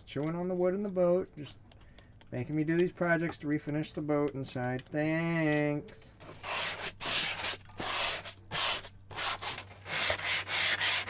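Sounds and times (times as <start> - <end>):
sandpaper rubbing on wood: 6.4 - 11.0.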